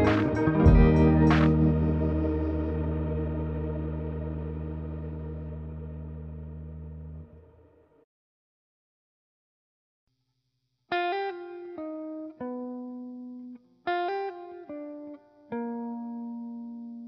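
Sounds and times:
plucked guitar melody: 0.0 - 7.2, 11.0 - 17.0.

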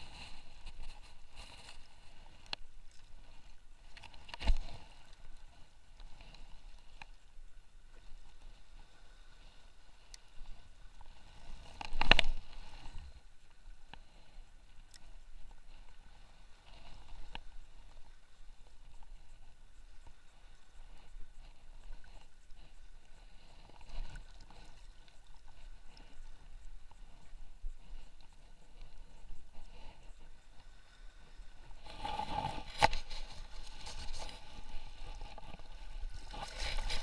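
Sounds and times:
water lapping: 0.0 - 37.0.

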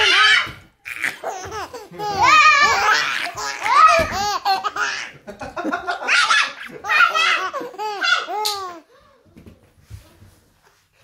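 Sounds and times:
baby laughing: 0.8 - 8.9.

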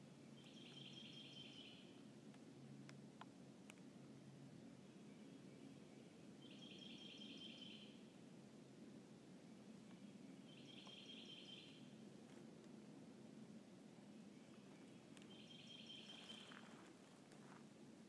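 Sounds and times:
songbird singing high notes: 0.4 - 1.8, 6.4 - 8.0, 10.5 - 11.8, 15.3 - 16.5.

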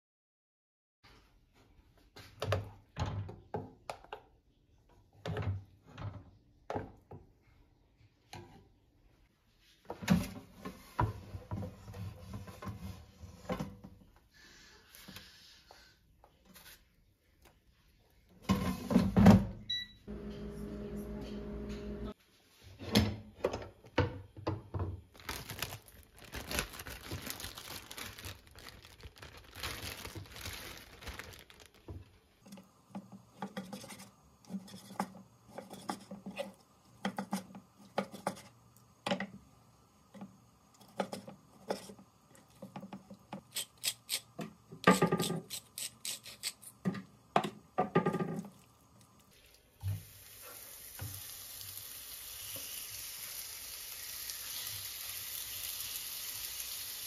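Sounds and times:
plastic packaging crinkling: 25.1 - 32.2
chicken sizzling in pan: 49.8 - 57.0.

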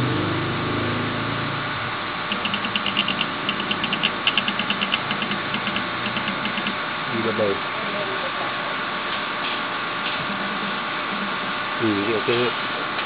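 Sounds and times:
steady machine hum: 0.0 - 13.0
rapid mechanical clicks: 2.3 - 6.8.

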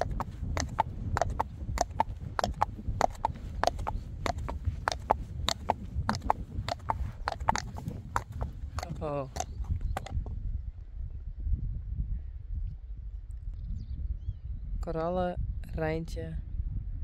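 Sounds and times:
horse hooves clip-clopping on asphalt: 0.0 - 10.2.

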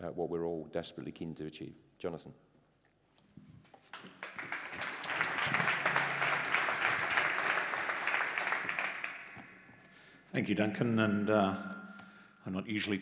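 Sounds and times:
audience applauding: 3.9 - 9.6.

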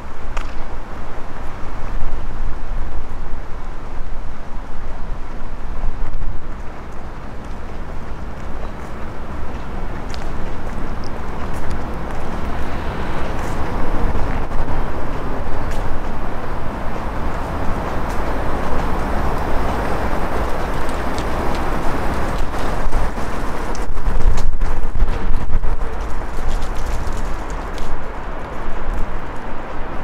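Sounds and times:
road traffic noise: 0.0 - 30.0
vehicle passing: 6.6 - 30.0.

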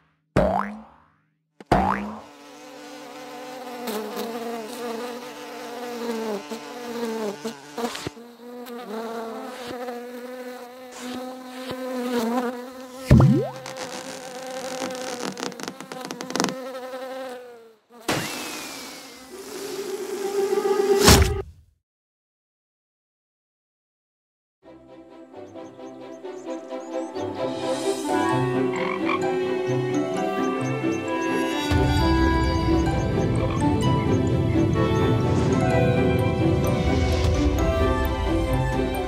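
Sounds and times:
fly buzzing: 1.7 - 21.3, 27.5 - 39.0.

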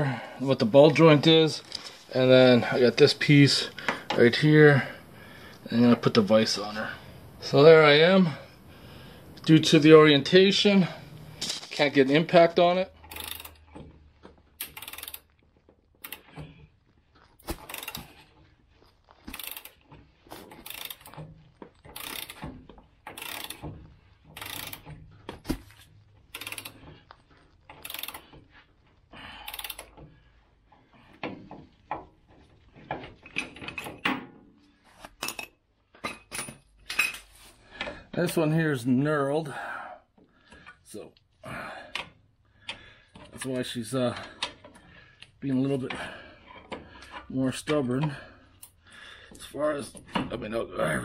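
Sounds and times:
hand ratchet clicking: 13.0 - 13.9, 14.6 - 15.4, 16.0 - 16.5, 17.5 - 18.2, 19.2 - 25.0, 26.3 - 27.0, 27.7 - 28.4, 29.4 - 30.2.

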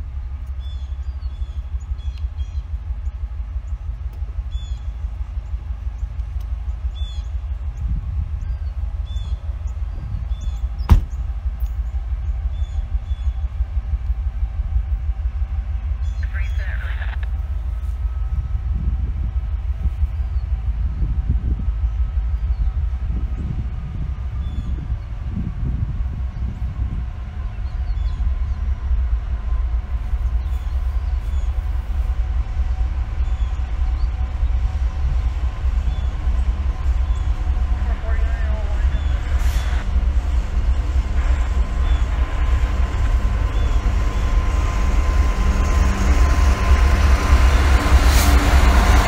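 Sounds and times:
faint steady hum: 0.0 - 47.8
distant freight train rumble: 0.0 - 49.0
sharp knock: 10.9 - 11.2
small birds chirping: 33.2 - 39.8.

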